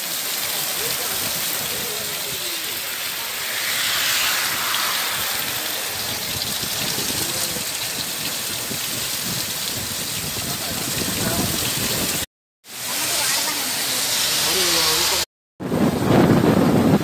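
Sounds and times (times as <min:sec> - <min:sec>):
heavy rain on foliage: 0:00.0 - 0:03.2, 0:06.2 - 0:15.2.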